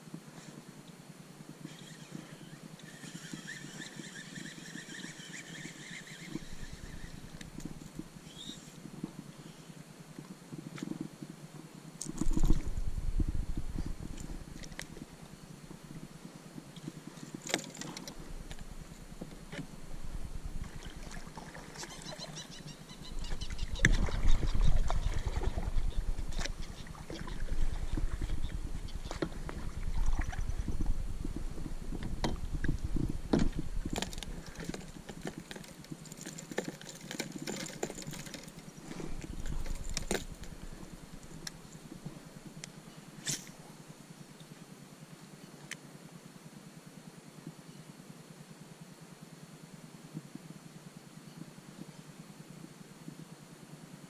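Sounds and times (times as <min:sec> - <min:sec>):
rumbling on microphone: 0:12.1 - 0:16.1, 0:23.1 - 0:35.0.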